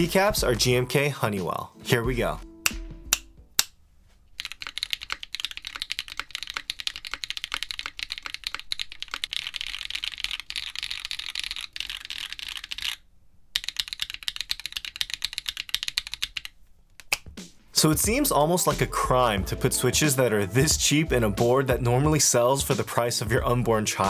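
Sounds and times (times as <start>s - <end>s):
mechanical keyboard typing: 4.4s - 13.0s, 13.6s - 17.2s.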